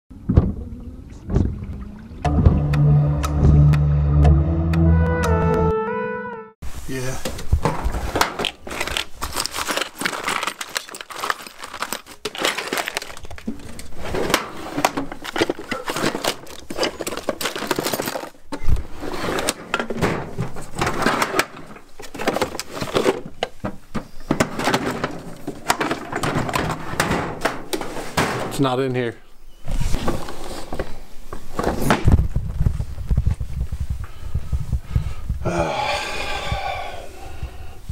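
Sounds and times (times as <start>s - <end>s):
tools clinking in a drawer: 8.4s - 20.1s.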